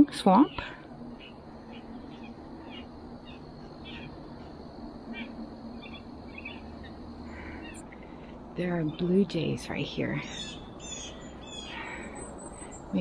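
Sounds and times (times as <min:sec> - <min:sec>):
blue jays chattering: 0:00.1 - 0:13.0.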